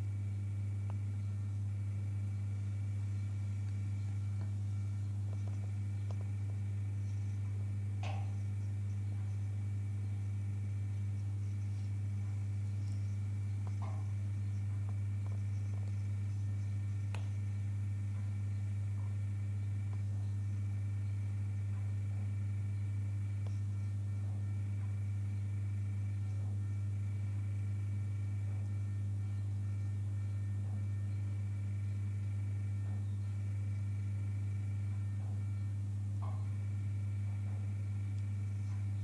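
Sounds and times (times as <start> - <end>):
low electrical hum: 0.0 - 39.0.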